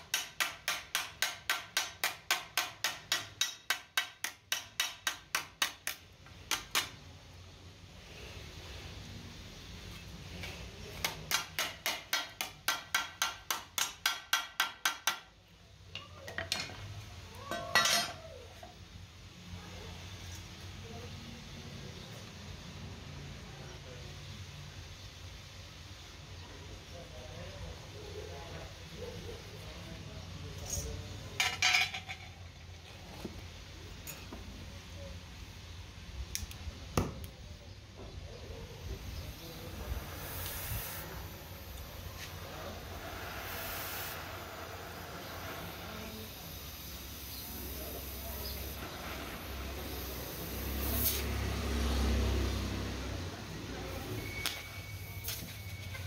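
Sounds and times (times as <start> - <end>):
hammer striking metal on anvil: 0.0 - 6.9, 11.0 - 15.3
tools clicking and knocking on metal: 0.0 - 7.0, 11.0 - 15.4.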